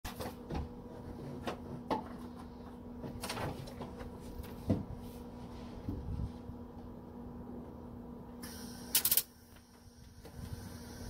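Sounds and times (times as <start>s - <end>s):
steady low hum: 0.1s - 11.0s.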